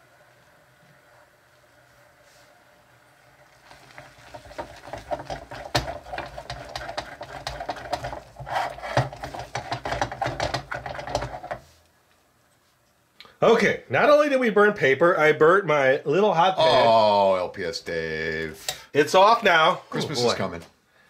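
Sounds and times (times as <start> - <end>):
sugar crackling and popping: 3.2 - 13.4
spoon scraping saucepan: 5.5 - 11.6.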